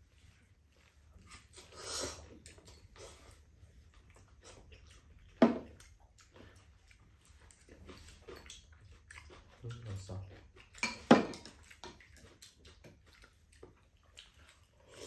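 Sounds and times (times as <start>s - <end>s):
soft chewing: 0.0s - 15.0s
slurping noodles: 1.2s - 3.6s, 14.2s - 15.0s.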